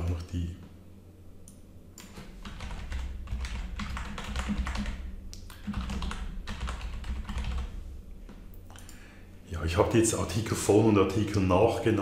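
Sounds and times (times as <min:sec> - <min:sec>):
typing on computer keyboard: 0:02.0 - 0:07.7.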